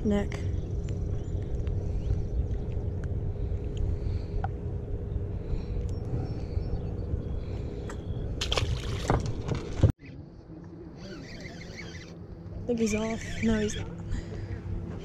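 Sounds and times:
wind rumble: 0:00.0 - 0:09.9
water noise on a boat: 0:08.4 - 0:09.9.

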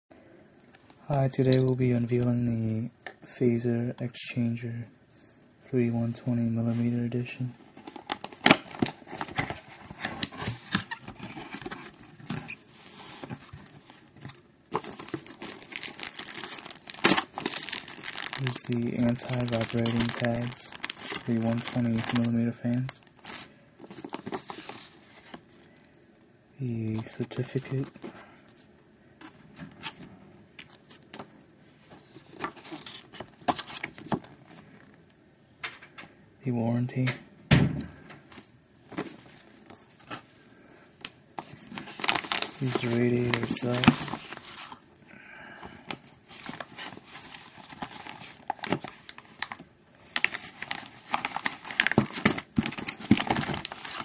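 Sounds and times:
paper crackling and rustling: 0:07.7 - 0:25.5, 0:41.4 - 0:44.8, 0:46.3 - 0:54.0.

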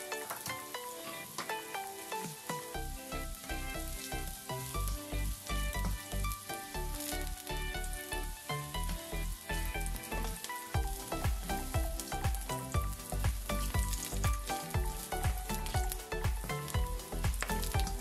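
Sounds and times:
background music with bass beat: 0:00.0 - 0:18.0
ginger sizzling in hot oil: 0:00.0 - 0:18.0.

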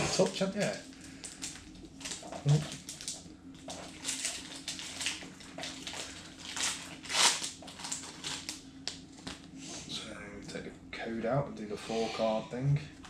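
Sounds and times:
foil wrapper crinkling: 0:00.2 - 0:09.5.

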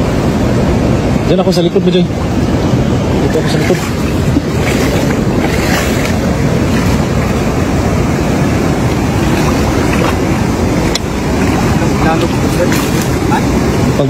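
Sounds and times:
wind rumble on microphone: 0:00.0 - 0:14.0
floodwater sloshing and splashing: 0:03.0 - 0:13.9.

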